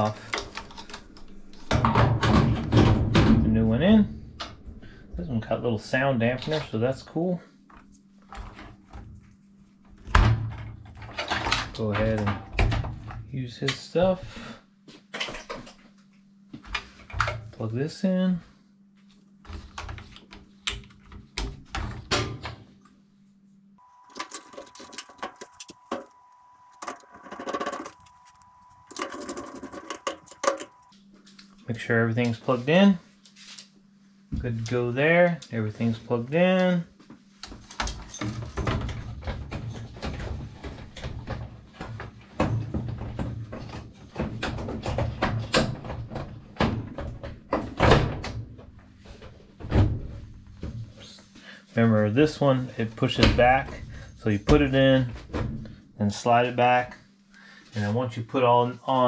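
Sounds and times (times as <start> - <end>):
faint steady high tone: 23.8 - 30.9
rattling and scraping: 26.8 - 30.9.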